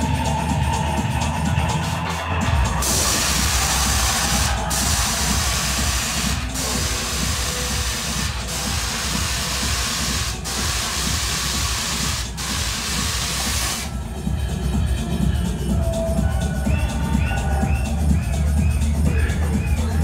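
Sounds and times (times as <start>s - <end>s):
electronic dance music: 0.0s - 20.0s
loud hissing noise: 2.7s - 13.9s.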